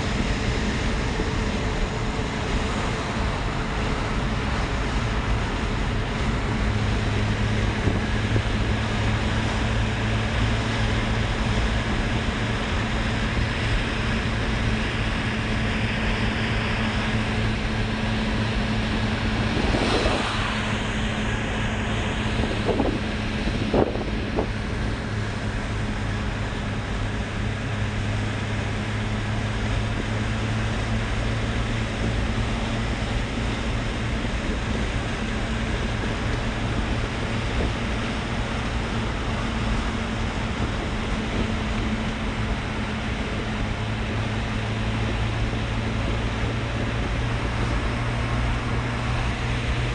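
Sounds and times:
car interior road noise: 0.0 - 49.9
car passing alongside: 16.5 - 25.4.

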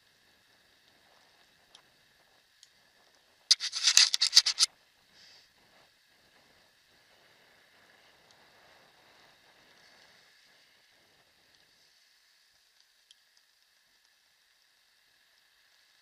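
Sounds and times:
faint tick: 12.8 - 14.2.

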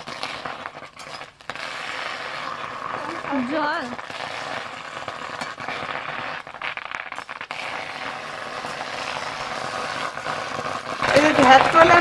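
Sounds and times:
spatula scraping and knocking pan: 0.0 - 6.5
leaves sizzling in a pan: 0.0 - 12.0.

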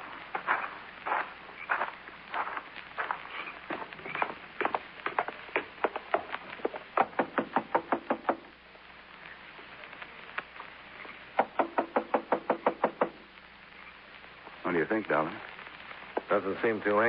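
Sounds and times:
knocking on a door: 7.0 - 8.4, 11.4 - 13.2.

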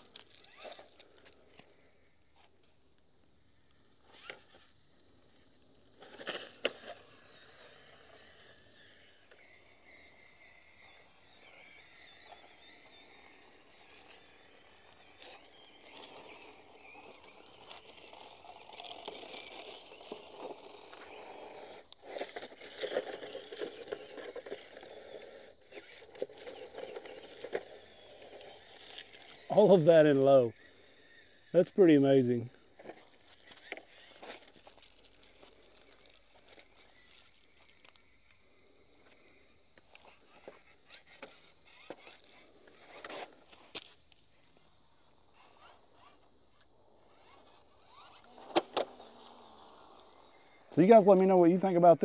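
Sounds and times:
small electric motor whirring: 0.0 - 52.0
tyres scraping on stone and leaves: 12.5 - 30.5, 31.7 - 44.2, 45.2 - 52.0.

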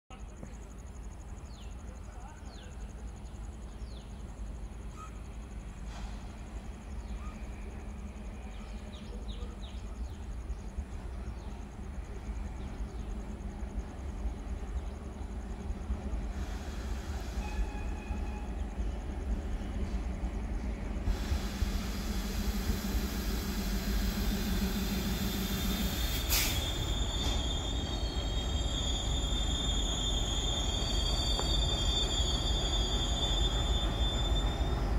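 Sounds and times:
diesel locomotive engine rumble: 0.1 - 34.9
train wheels squealing: 3.8 - 34.9
short hiss: 5.8 - 6.4, 21.1 - 27.5
insect pulsing drone: 10.0 - 34.9.

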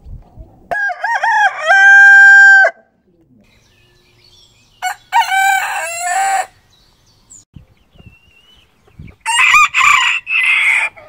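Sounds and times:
rooster crowing: 0.7 - 2.8, 4.8 - 6.6, 9.2 - 11.0.

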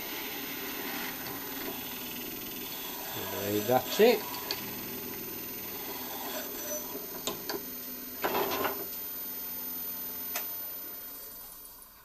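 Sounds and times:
wood lathe humming: 0.0 - 8.2.

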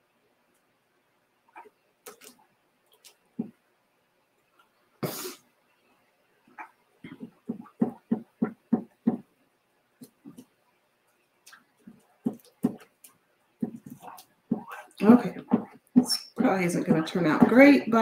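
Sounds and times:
short breathy burst: 5.0 - 5.4.

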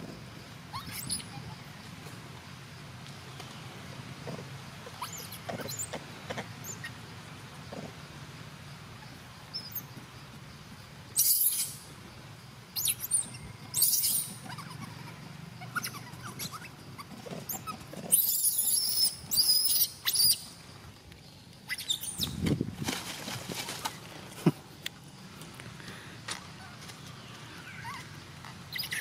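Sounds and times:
macaques squealing: 0.7 - 1.7, 4.8 - 6.0, 11.2 - 11.8, 12.8 - 20.6, 21.6 - 22.4, 27.6 - 29.0.

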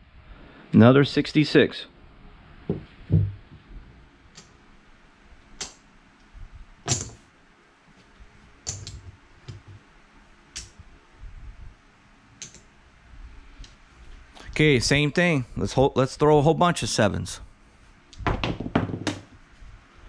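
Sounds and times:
clay chips clicking: 12.4 - 12.7.

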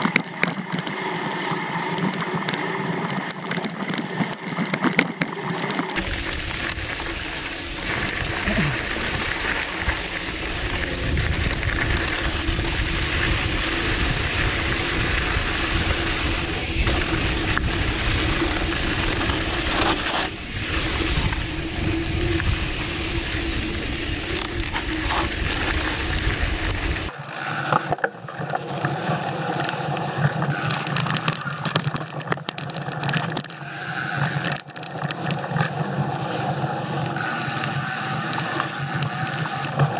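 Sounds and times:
bike chain and frame rattling: 0.0 - 28.0, 30.3 - 36.2
tyres crunching on gravel: 3.7 - 27.2
wind rumble on microphone: 6.0 - 27.1.

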